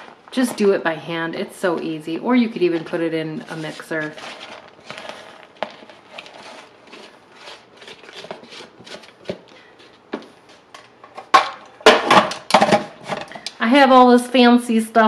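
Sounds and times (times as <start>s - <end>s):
cheese rustling on paper plate: 2.5s - 11.0s
plastic lid clattering: 11.1s - 13.3s.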